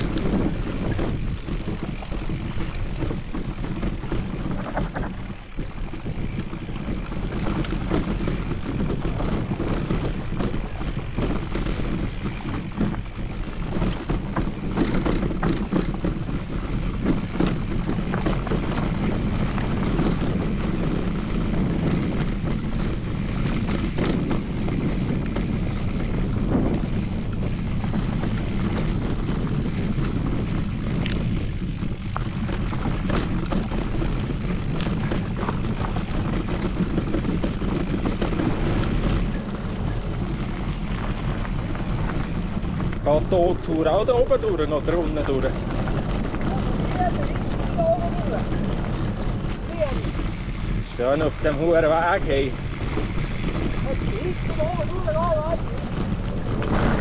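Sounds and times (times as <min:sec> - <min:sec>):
bike clicks and rattles: 0:00.0 - 0:57.0
wind rumble on microphone: 0:00.0 - 0:57.0.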